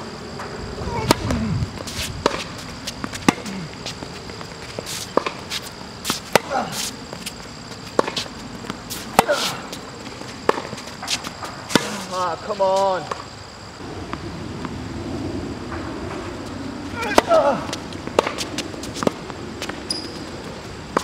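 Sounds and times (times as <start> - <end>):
tennis ball struck by rackets: 0.9 - 3.6, 5.1 - 6.7, 7.9 - 8.3, 8.9 - 9.6, 10.4 - 12.1, 18.1 - 20.1
shoe squeaks on court: 19.8 - 20.4.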